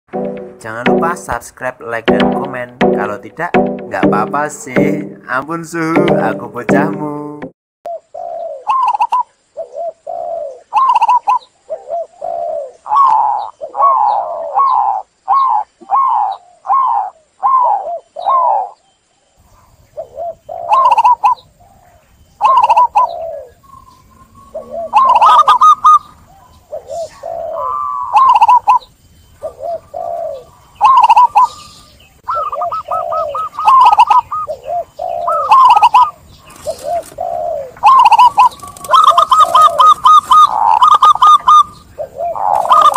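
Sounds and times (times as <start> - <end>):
doves cooing: 7.9 - 18.8, 19.6 - 42.9.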